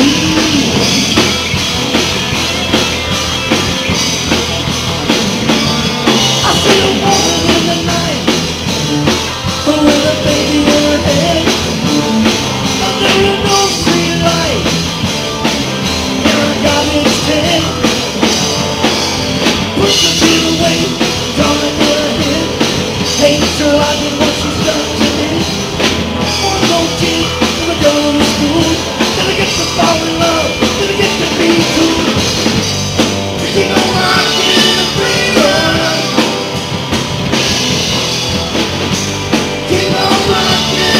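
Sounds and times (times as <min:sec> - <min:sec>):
drum kit: 0:00.0 - 0:40.9
electric guitars: 0:00.0 - 0:40.9
lead vocal through microphone: 0:06.3 - 0:08.4, 0:09.6 - 0:14.7, 0:16.2 - 0:17.8, 0:19.8 - 0:25.6, 0:26.3 - 0:32.2, 0:33.4 - 0:36.4, 0:39.6 - 0:40.9.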